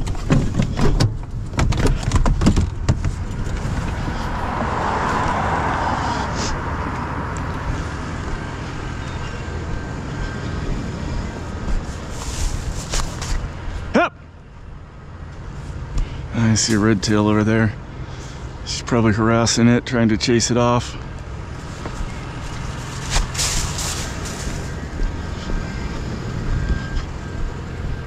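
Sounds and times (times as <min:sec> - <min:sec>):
sharp knocks and rattles: 0:00.0 - 0:04.0
low vehicle rumble: 0:00.0 - 0:28.0.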